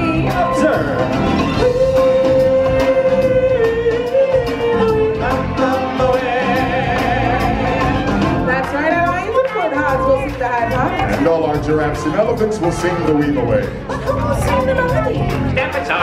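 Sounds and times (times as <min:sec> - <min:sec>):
person singing: 0:00.0 - 0:08.5
backing music: 0:00.0 - 0:16.0.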